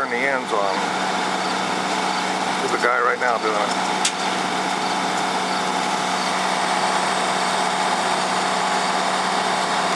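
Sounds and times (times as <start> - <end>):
engine idling: 0.0 - 9.9.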